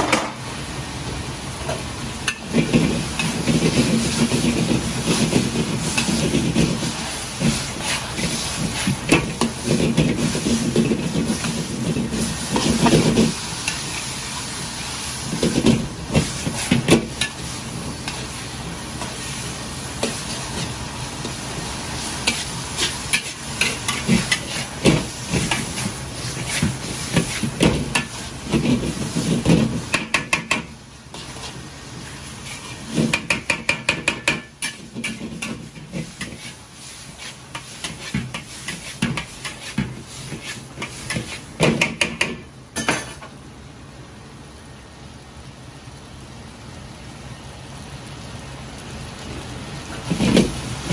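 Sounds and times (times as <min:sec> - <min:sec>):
food sizzling in wok: 0:00.0 - 0:50.9
metal ladle scraping wok: 0:22.2 - 0:29.8, 0:31.1 - 0:33.4, 0:34.4 - 0:41.5.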